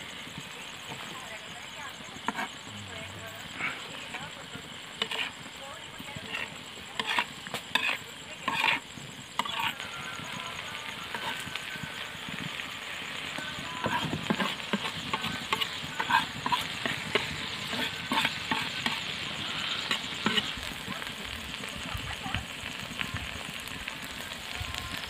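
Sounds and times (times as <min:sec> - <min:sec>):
fish sizzling in a pan: 0:00.0 - 0:25.0
metal spatula scraping a pan: 0:02.2 - 0:02.6, 0:03.4 - 0:21.0.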